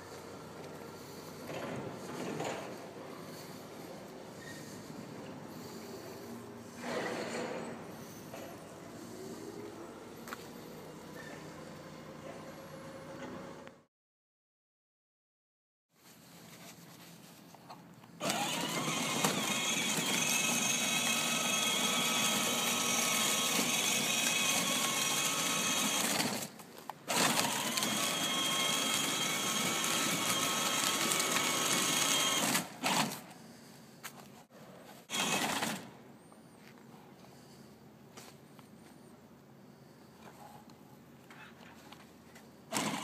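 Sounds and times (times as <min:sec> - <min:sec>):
toy car electric motors whining: 0:18.2 - 0:33.3, 0:35.0 - 0:35.9, 0:42.7 - 0:43.0.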